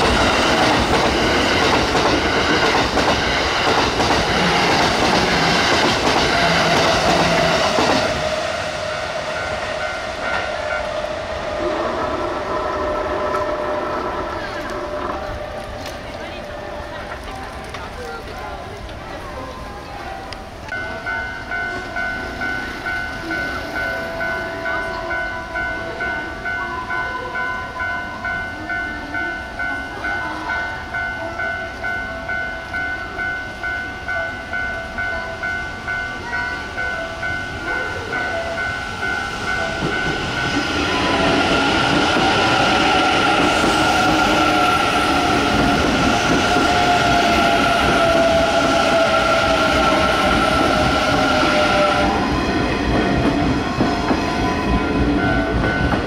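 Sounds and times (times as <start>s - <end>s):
electric train passing: 0.0s - 56.0s
pulsing ringing tone: 5.4s - 17.1s.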